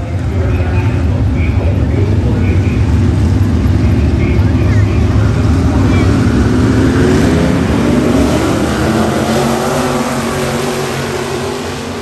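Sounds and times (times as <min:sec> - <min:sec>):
race car engines: 0:00.0 - 0:12.0.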